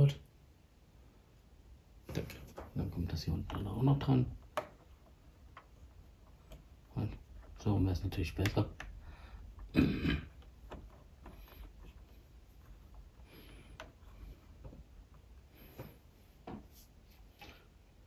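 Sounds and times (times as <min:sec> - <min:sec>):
plastic parts clicking and rubbing: 0:10.3 - 0:15.9.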